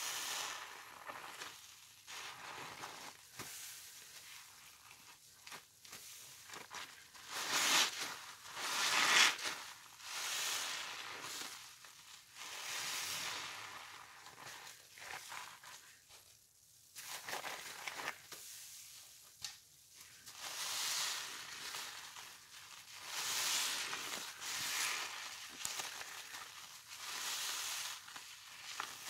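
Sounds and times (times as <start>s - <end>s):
wet sponges squeezed fizzing: 0.0s - 16.1s, 17.0s - 18.6s, 20.0s - 29.0s.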